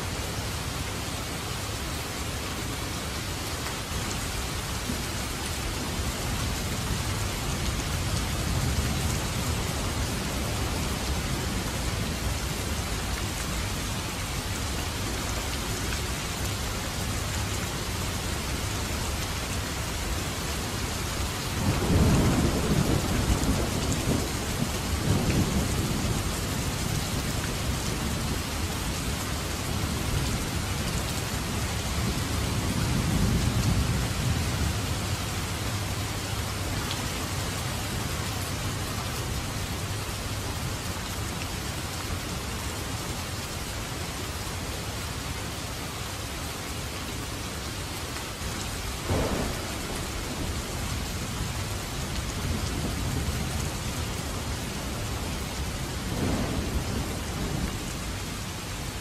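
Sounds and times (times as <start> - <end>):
heavy rain: 0.0 - 59.0
low thunder rumbling: 21.5 - 30.6, 49.0 - 59.0.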